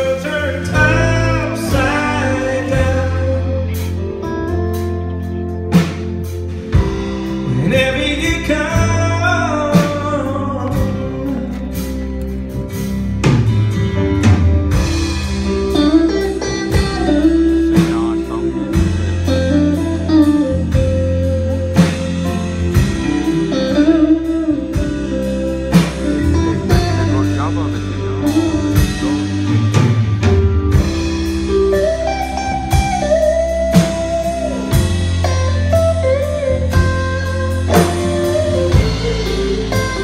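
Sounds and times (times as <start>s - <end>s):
bass guitar: 0.0s - 40.0s
drums: 0.0s - 40.0s
guitar melody: 0.0s - 40.0s.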